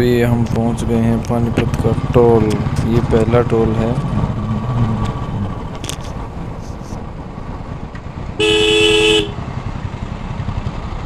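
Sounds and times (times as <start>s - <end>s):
motorcycle engine running: 0.0s - 11.0s
two-tone vehicle horn: 8.4s - 9.4s.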